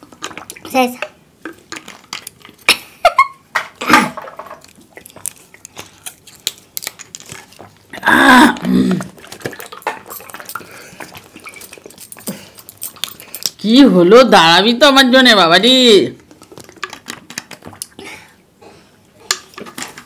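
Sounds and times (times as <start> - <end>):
people gulping drink: 1.5 - 13.6, 16.2 - 20.0.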